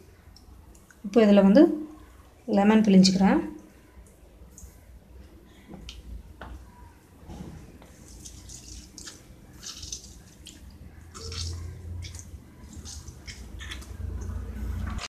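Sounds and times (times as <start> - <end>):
wet squelching of hands mixing meat: 7.6 - 15.0.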